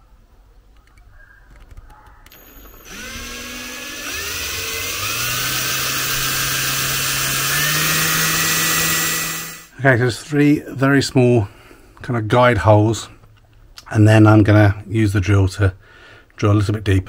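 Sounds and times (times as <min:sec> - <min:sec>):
power drill motor spinning: 0:02.3 - 0:09.7.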